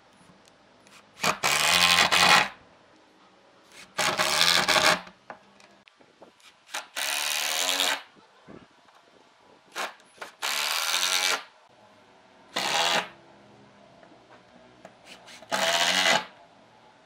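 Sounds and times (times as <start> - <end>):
impact driver driving screws into wood: 1.2 - 2.6, 9.7 - 11.5, 12.6 - 13.1, 15.1 - 16.3.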